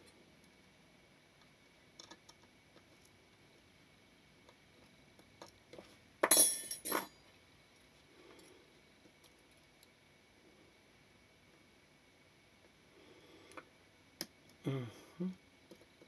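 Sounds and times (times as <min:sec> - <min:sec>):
metal tools clattering on metal plate: 0:06.2 - 0:07.2.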